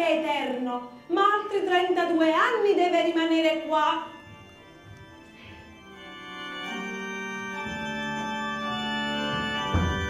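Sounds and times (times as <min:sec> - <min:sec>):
organ playing sustained chords: 0:00.0 - 0:10.0
thump: 0:09.3 - 0:10.0.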